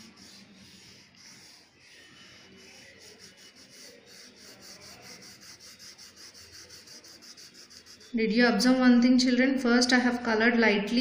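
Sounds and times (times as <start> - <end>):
coloured pencil scratching on paper: 0.0 - 8.2.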